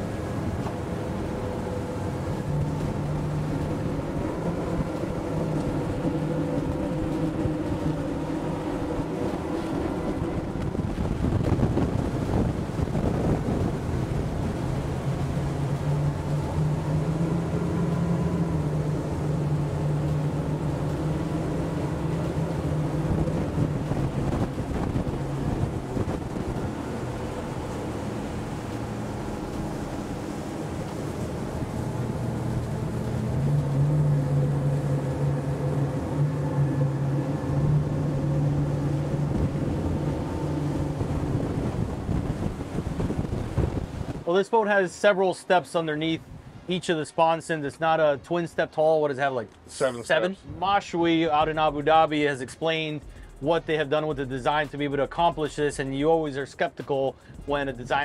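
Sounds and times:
wind buffeting microphone: 0.0s - 44.3s
outboard engines at speed: 0.0s - 58.0s
water rushing along hull: 0.0s - 58.0s.

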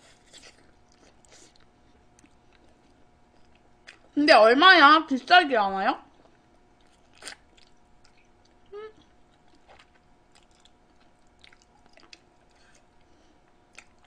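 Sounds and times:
close-miked chewing: 0.0s - 4.2s, 6.1s - 14.0s
person humming: 8.7s - 9.0s.

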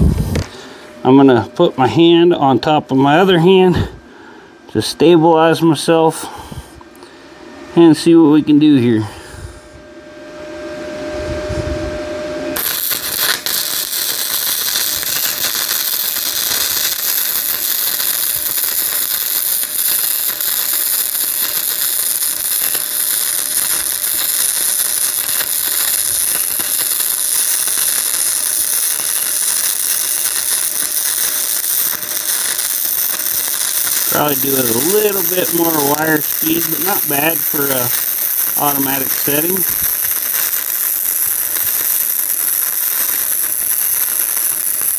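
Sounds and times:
faint steady hum: 0.0s - 44.8s
welding arc crackling and sizzling: 12.6s - 44.9s.

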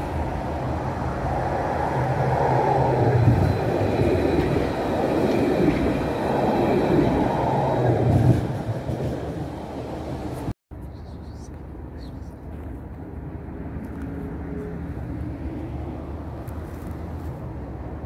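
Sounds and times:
tram rumbling on rails: 0.0s - 18.0s.

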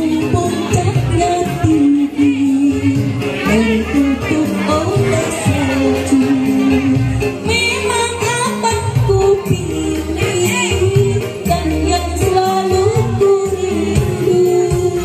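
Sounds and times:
bass line: 0.0s - 15.0s
person singing: 0.0s - 15.0s.

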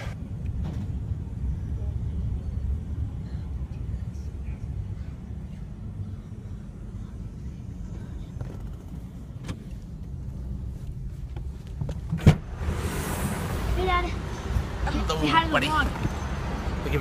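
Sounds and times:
car engine rumble inside cabin: 0.0s - 12.8s.

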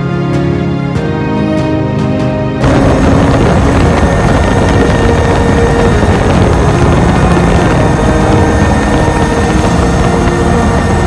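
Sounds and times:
background music with held chords: 0.0s - 11.0s
helicopter running: 2.6s - 11.0s.

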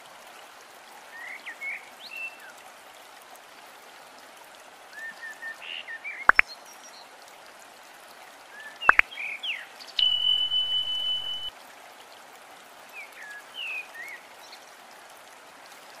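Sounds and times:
water ambience: 0.0s - 16.0s
high electronic beep: 10.0s - 11.5s
short chirps: 10.0s - 11.5s.

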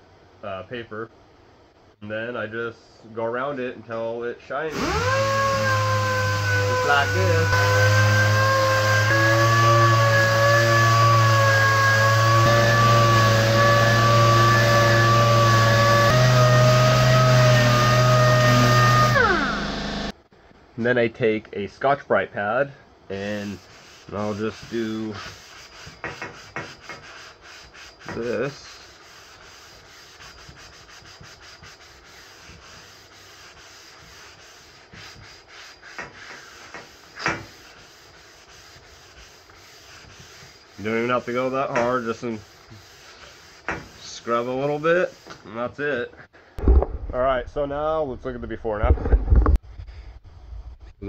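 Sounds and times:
sander whine on metal: 4.7s - 20.2s
abrasive pad scrubbing metal tube: 5.0s - 20.1s, 23.1s - 45.5s.

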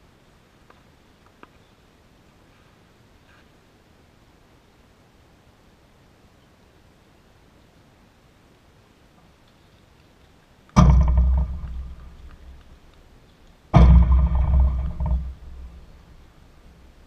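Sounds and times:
loud knocks with ringing tail: 10.8s - 12.7s, 13.8s - 16.3s.

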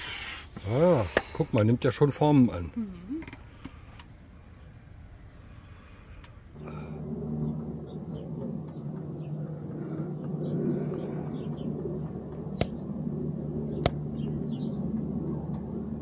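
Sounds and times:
low motor hum: 0.0s - 16.0s.

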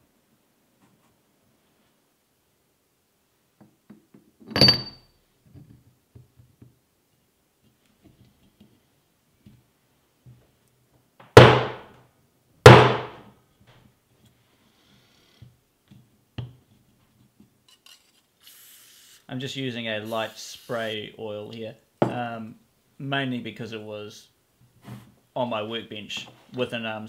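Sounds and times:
ringing metal clink: 4.5s - 5.1s
sharp heavy knocks: 11.2s - 11.9s, 12.7s - 13.2s.

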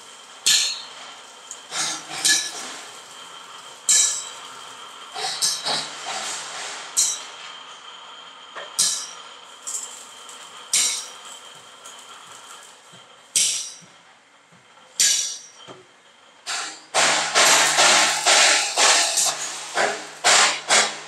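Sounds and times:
angle grinder grinding steel: 0.0s - 6.3s, 8.8s - 13.6s, 16.5s - 21.0s.

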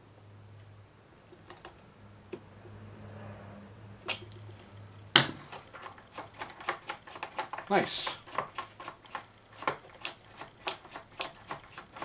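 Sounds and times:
hand tools clicking on plastic: 5.5s - 12.0s.

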